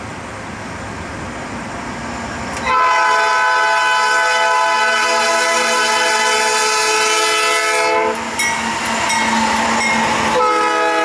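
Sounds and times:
train rumbling: 0:00.0 - 0:11.0
locomotive air horn chord: 0:02.6 - 0:08.2, 0:10.3 - 0:11.0.

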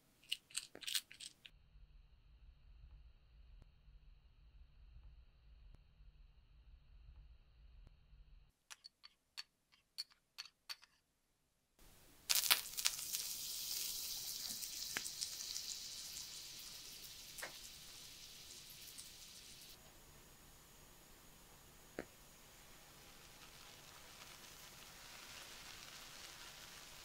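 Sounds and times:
food sizzling in a hot pan: 0:12.3 - 0:19.8, 0:20.7 - 0:27.0.

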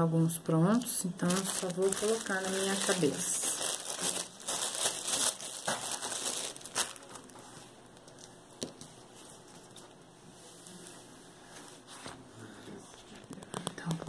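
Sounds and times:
plastic bag crinkling: 0:00.8 - 0:08.3.

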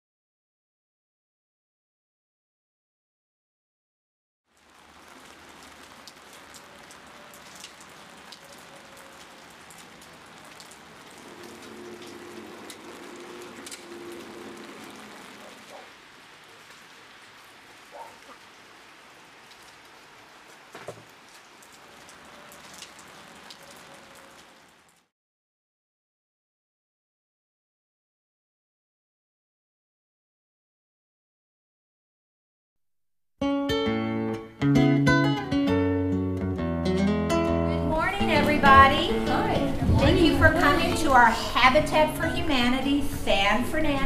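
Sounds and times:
rain falling: 0:04.5 - 0:25.1, 0:37.8 - 0:44.0.

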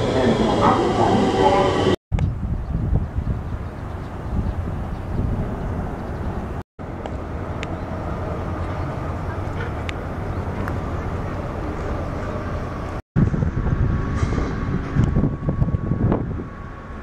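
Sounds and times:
wind buffeting microphone: 0:01.5 - 0:17.0.

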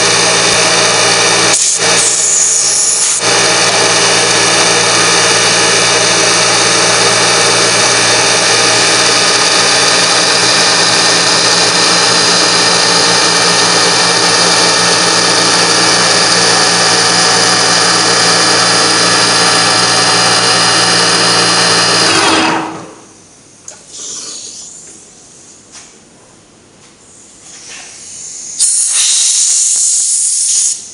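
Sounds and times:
milling machine cutting whine: 0:00.0 - 0:23.1.

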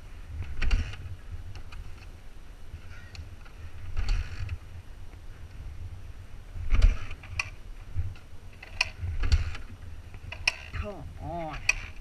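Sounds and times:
steady low rumble: 0:00.0 - 0:12.0
dirt bike kick-start strokes: 0:00.4 - 0:02.1, 0:02.8 - 0:04.8, 0:06.6 - 0:12.0.

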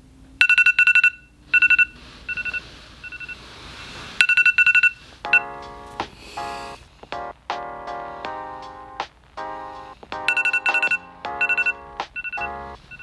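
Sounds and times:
phone alarm beeping: 0:00.4 - 0:03.4, 0:04.2 - 0:05.6, 0:10.3 - 0:13.0.

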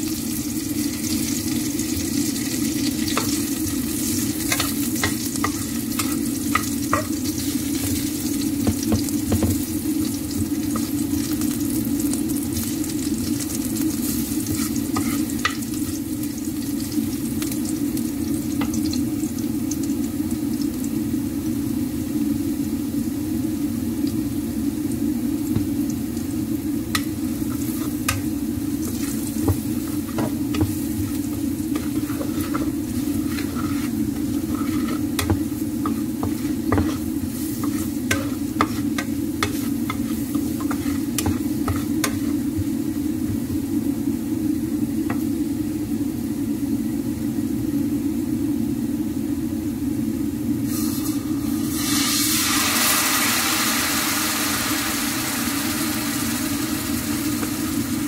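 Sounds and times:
liquid sizzling in hot pan: 0:00.0 - 0:46.5, 0:50.6 - 0:58.0
spices frying in oil: 0:00.0 - 0:48.3, 0:50.0 - 0:58.0
spatula scraping and tapping a pan: 0:03.0 - 0:03.5, 0:04.1 - 0:09.6, 0:14.0 - 0:15.7, 0:26.9 - 0:43.4.

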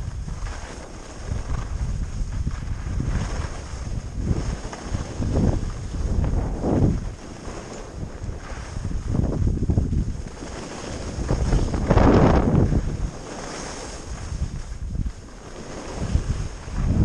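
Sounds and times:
skis carving on snow: 0:00.0 - 0:17.0
wind rushing over microphone: 0:00.0 - 0:17.0.

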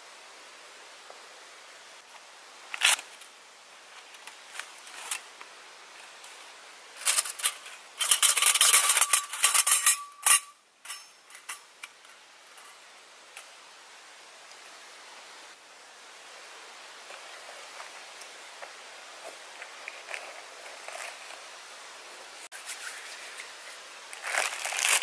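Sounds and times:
metallic clinking and scraping: 0:07.0 - 0:12.8.

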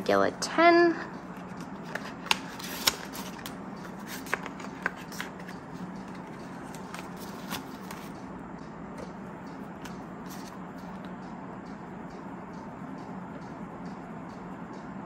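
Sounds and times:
faint steady hum: 0:00.0 - 0:15.0
banknotes rustling: 0:01.3 - 0:08.2, 0:09.9 - 0:10.6.

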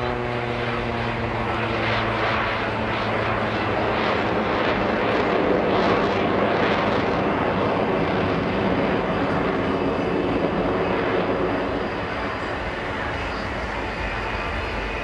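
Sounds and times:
aircraft engines roaring: 0:00.0 - 0:15.0.

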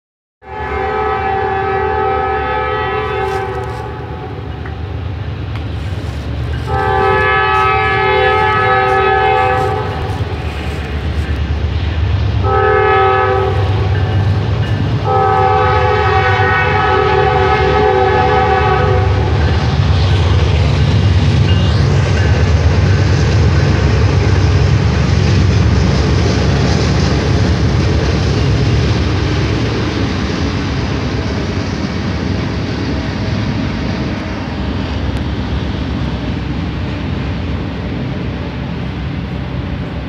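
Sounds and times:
locomotive air horn blasts: 0:00.4 - 0:05.0, 0:05.7 - 0:11.3, 0:12.4 - 0:19.5
low rumble of train: 0:00.4 - 0:40.0.

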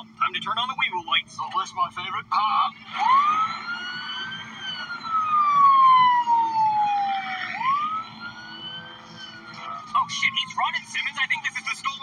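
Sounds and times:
police siren wailing: 0:02.7 - 0:12.0.

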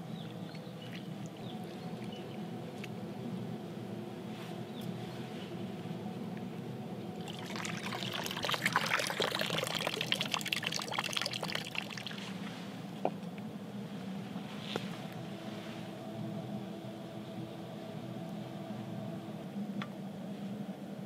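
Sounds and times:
steady low hum: 0:00.0 - 0:21.0
liquid being poured: 0:07.2 - 0:12.5.

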